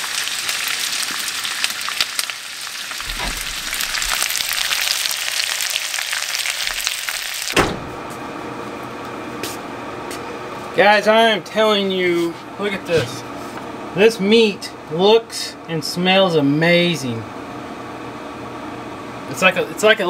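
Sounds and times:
potatoes sizzling in grease: 0.0 - 7.6
steady hum: 3.0 - 5.5, 6.6 - 20.0.

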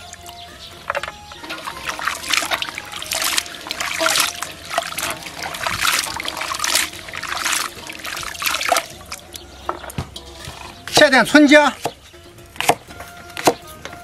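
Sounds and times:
water splashing and trickling: 0.0 - 12.0
hands swishing in water: 1.5 - 8.9.

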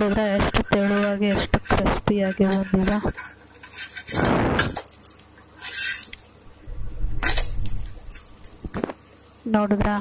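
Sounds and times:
metal spatula scraping a griddle: 0.0 - 4.9, 5.5 - 6.3.

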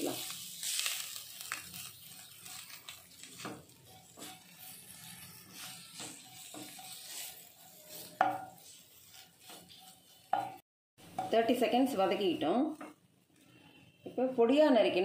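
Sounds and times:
wooden spatula scraping a pan: 0.0 - 10.6
light sizzle of frying: 0.0 - 14.2.

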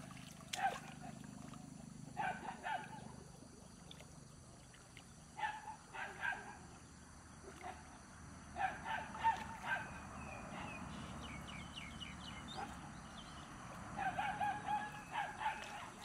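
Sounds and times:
dog barking in high yelps: 2.2 - 3.0, 14.0 - 15.9.

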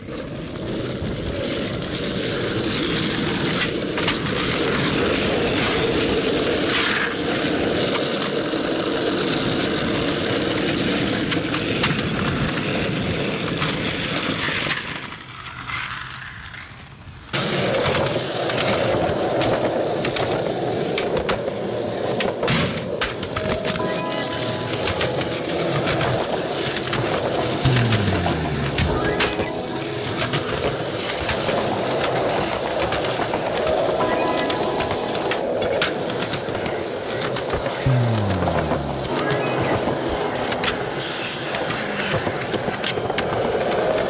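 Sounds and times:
skateboard wheels rolling on pavement: 0.0 - 28.5, 29.5 - 38.0
skateboard clacks: 17.3 - 44.0.

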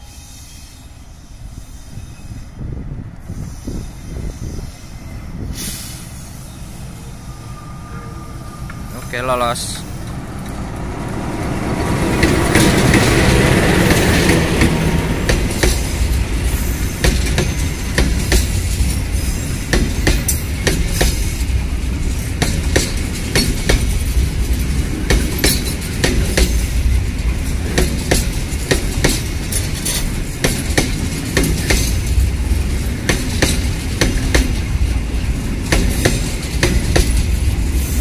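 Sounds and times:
diesel locomotive engine: 0.0 - 38.0
train wheels clickety-clack: 10.0 - 38.0.

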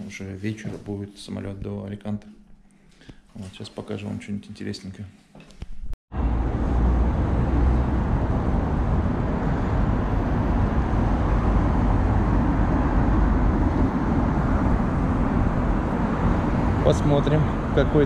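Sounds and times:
city street traffic rumble: 6.1 - 18.0.

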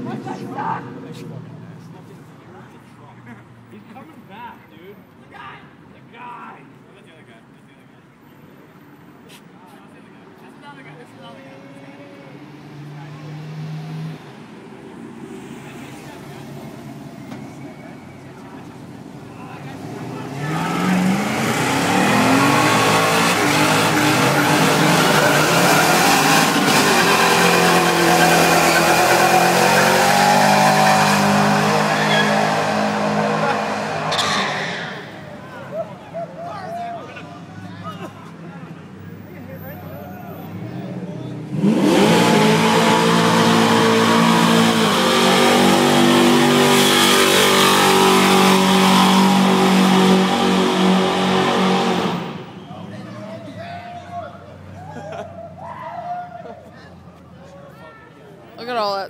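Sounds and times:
tyres squealing on pavement: 15.4 - 37.9, 39.0 - 40.8, 41.9 - 59.0
truck engine revving: 19.6 - 35.4, 41.4 - 52.6.

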